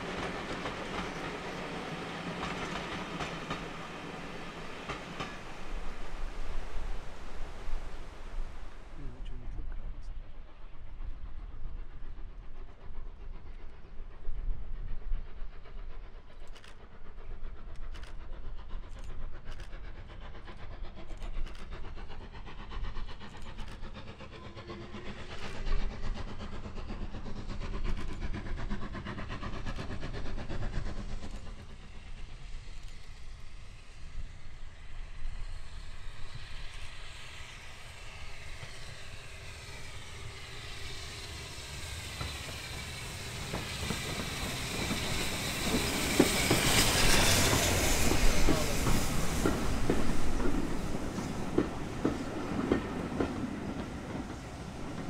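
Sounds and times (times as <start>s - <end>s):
wheels clicking over rail joints: 0.0s - 5.9s, 36.3s - 55.0s
steam hiss: 0.0s - 55.0s
steam train running: 0.0s - 55.0s.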